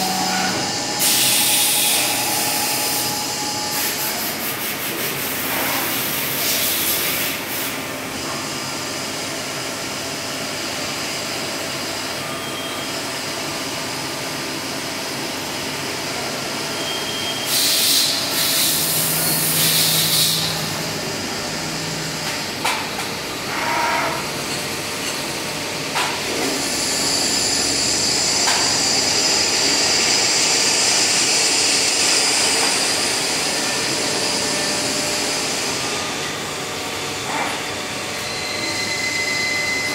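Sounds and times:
lathe mechanical hum: 0:00.0 - 0:39.9
loud hissing burst: 0:17.5 - 0:20.9.

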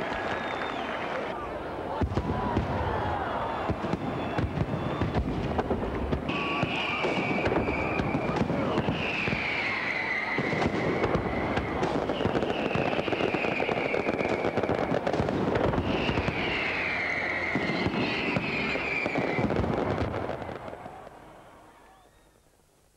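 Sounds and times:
falling firework whistles: 0:00.2 - 0:01.0, 0:03.5 - 0:05.6, 0:06.3 - 0:21.0
fireworks crackling and banging: 0:01.9 - 0:21.5.

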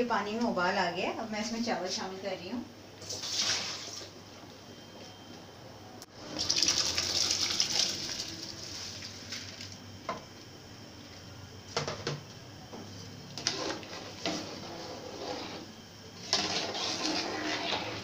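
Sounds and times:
metal ladle scraping a pot: 0:13.4 - 0:18.0.

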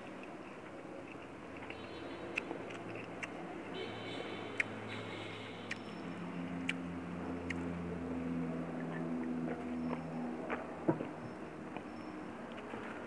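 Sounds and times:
person chewing: 0:01.6 - 0:03.4, 0:05.6 - 0:05.9
sharp little clicks: 0:01.6 - 0:03.4, 0:05.6 - 0:06.0.

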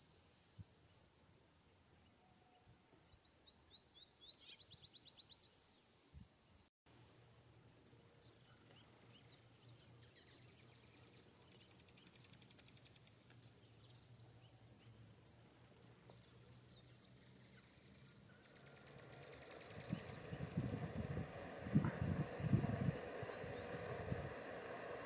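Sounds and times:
rapid high insect trill: 0:15.7 - 0:25.0.

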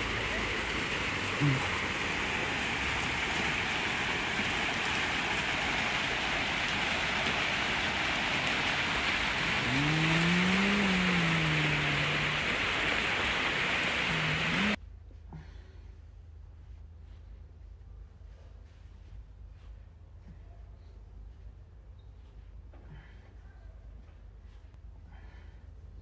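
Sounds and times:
fountain water splashing: 0:00.0 - 0:14.8
low voice-like hum: 0:01.4 - 0:01.8, 0:09.5 - 0:14.8.

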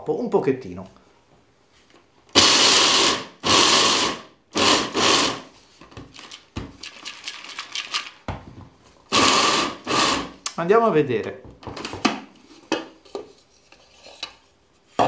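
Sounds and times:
blade grinder chopping peanuts: 0:02.3 - 0:05.5, 0:09.1 - 0:10.4.

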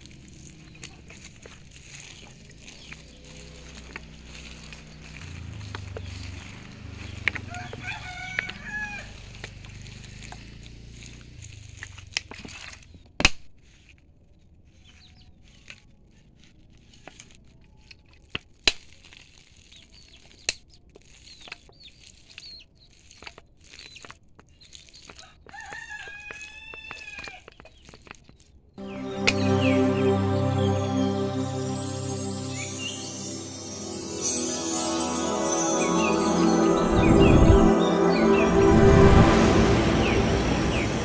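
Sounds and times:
rooster crowing: 0:07.5 - 0:09.1.

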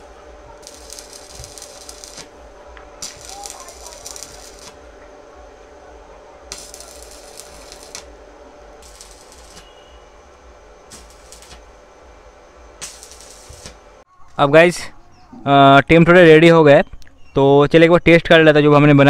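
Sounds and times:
welding arc crackling: 0:00.0 - 0:14.0
faint steady hum: 0:00.0 - 0:16.2.

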